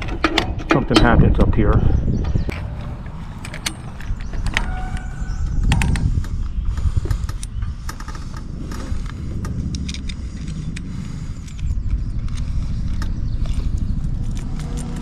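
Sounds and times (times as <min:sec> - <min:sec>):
wind buffeting microphone: 0:00.0 - 0:15.0
short squeak: 0:04.4 - 0:05.7.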